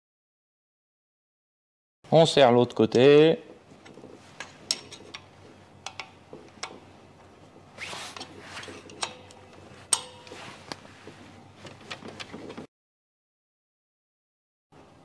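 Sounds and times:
spanner clicking on metal: 8.9s - 10.3s.

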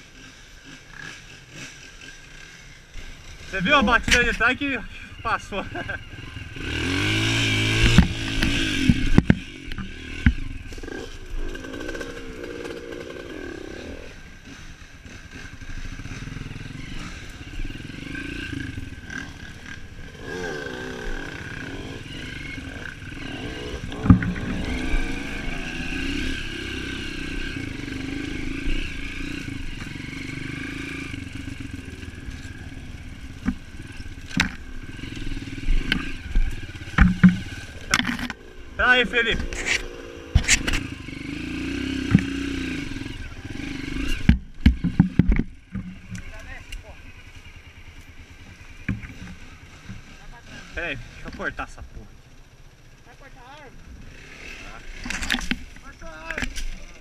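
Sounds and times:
motorcycle engine revving: 0.0s - 57.0s
bike knocks and clatter: 35.8s - 38.4s.

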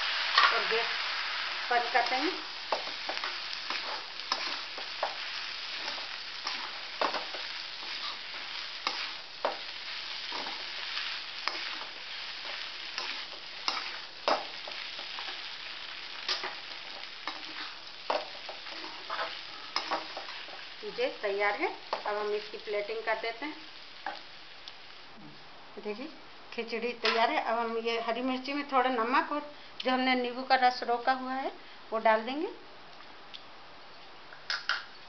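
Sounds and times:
pan sizzling: 0.0s - 25.2s
metal spatula scraping a pan: 2.0s - 15.5s, 16.2s - 20.7s.

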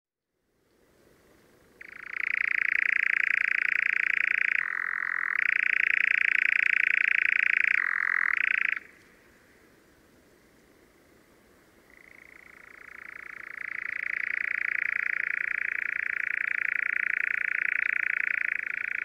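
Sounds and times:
nightjar churring trill: 1.8s - 8.9s, 11.9s - 19.0s.

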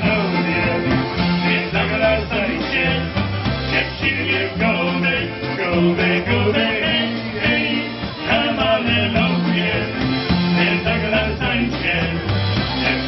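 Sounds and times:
bass stepping between notes: 0.0s - 13.0s
polka band playing: 0.0s - 13.0s.

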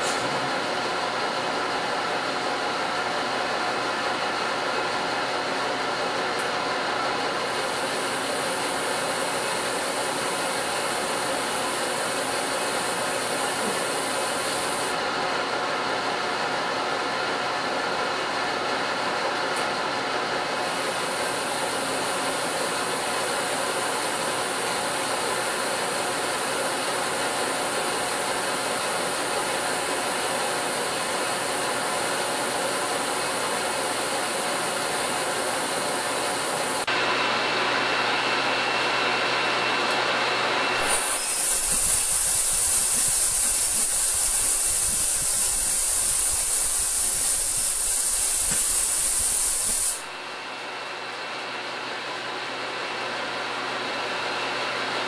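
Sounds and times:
ultrasonic cleaner hiss: 7.4s - 15.0s, 20.8s - 36.9s, 40.8s - 50.3s
cavitation hiss in water: 40.8s - 50.2s.

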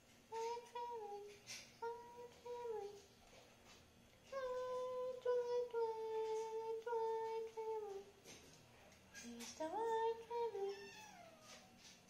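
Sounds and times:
cat meowing: 10.6s - 11.7s.

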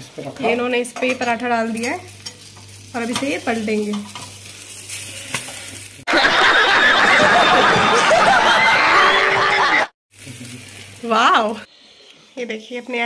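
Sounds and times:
crowd laughing: 6.1s - 10.0s.

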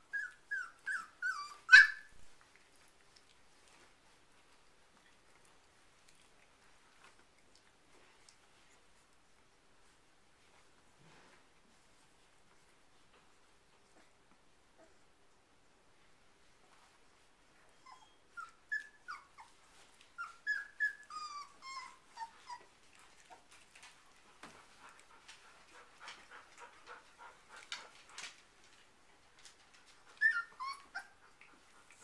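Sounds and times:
puppies whimpering and yipping: 0.0s - 2.9s, 17.7s - 27.8s, 29.8s - 32.0s.

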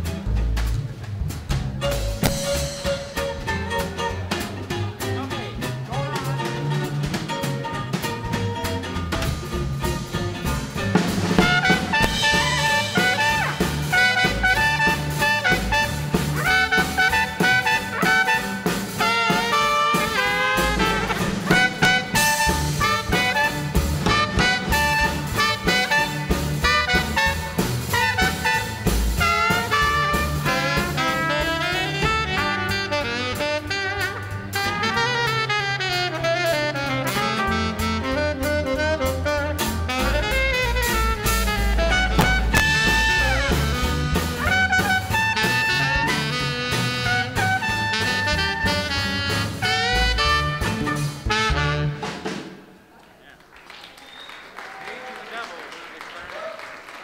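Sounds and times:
swing jazz band playing: 0.0s - 52.7s
trumpet lead: 2.2s - 4.6s, 10.7s - 52.4s.

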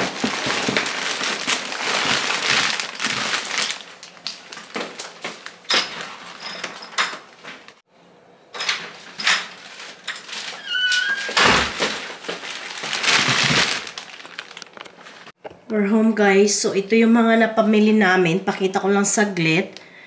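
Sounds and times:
plastic bags rustling: 0.0s - 7.8s, 8.6s - 15.4s.

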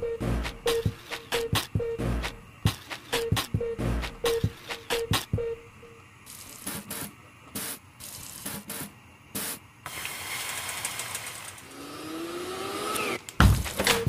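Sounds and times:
pot boiling on gas burner: 9.7s - 14.0s.

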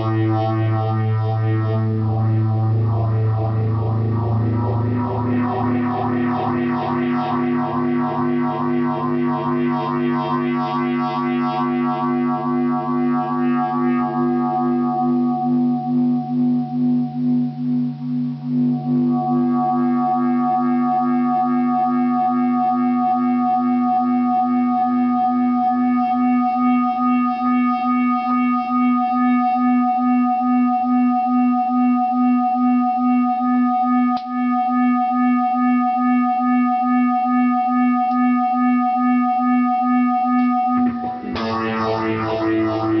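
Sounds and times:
pulsing acoustic guitar drone: 0.0s - 23.0s, 40.7s - 43.0s
click: 34.2s - 34.4s, 38.1s - 38.3s.

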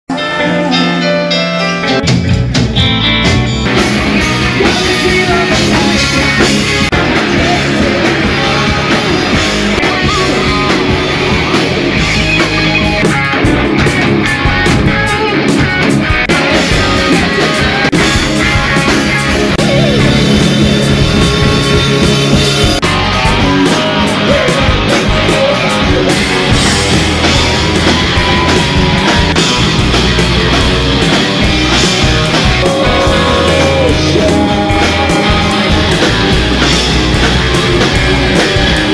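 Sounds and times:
distorted electric guitars: 0.1s - 38.9s
drum kit: 0.1s - 38.9s.

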